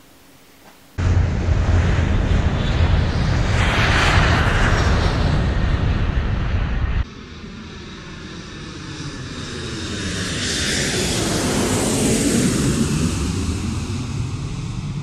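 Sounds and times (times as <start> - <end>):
loud rumble: 1.0 - 7.0
airplane passing over: 1.0 - 15.0.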